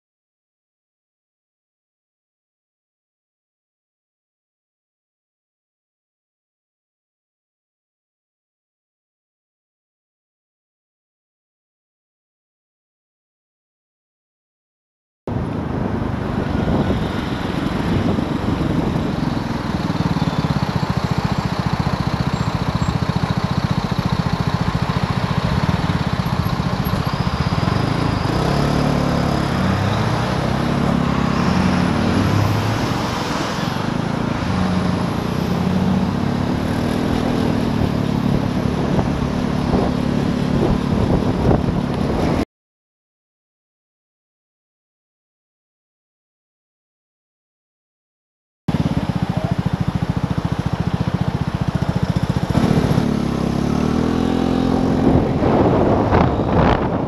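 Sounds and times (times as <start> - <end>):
wind noise on microphone: 15.3 - 20.4, 37.6 - 42.4, 54.2 - 57.0
scooter engine running: 15.3 - 42.4, 48.7 - 57.0
surrounding traffic: 15.3 - 42.5, 48.7 - 57.0.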